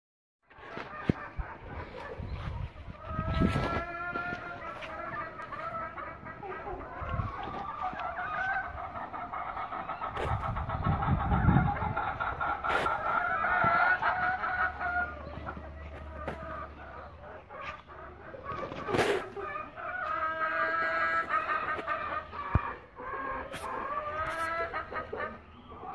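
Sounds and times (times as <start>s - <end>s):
chickens clucking: 0.5s - 25.9s.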